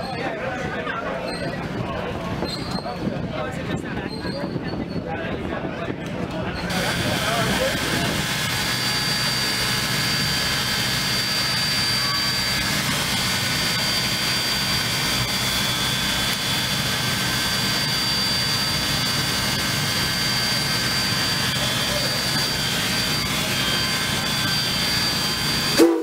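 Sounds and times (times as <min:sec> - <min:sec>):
locomotive hum and hiss: 0:06.6 - 0:26.0
thin high whine: 0:06.6 - 0:26.0.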